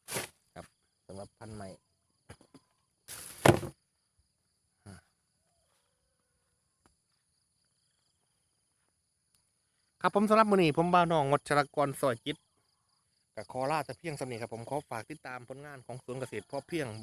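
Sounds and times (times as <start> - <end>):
rustling thump: 3.1 - 3.8.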